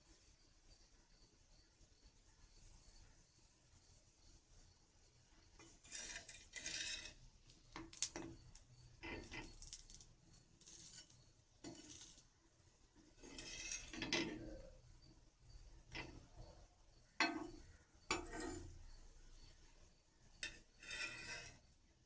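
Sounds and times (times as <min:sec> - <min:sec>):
metal spatula scraping griddle: 0:05.6 - 0:12.3, 0:13.0 - 0:15.1, 0:15.8 - 0:19.5, 0:20.3 - 0:21.8.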